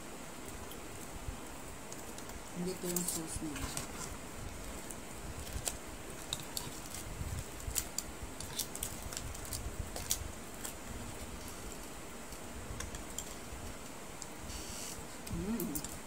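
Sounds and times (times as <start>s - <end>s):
low background noise: 0.0s - 16.0s
crab shells cracking: 3.7s - 14.4s.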